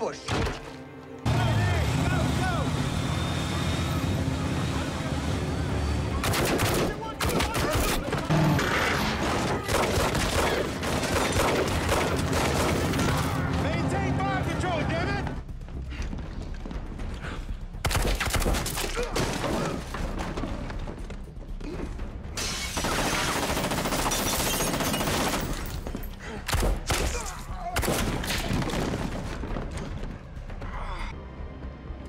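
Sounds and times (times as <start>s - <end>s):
rapid automatic gunfire: 9.6s - 13.1s, 22.7s - 25.6s.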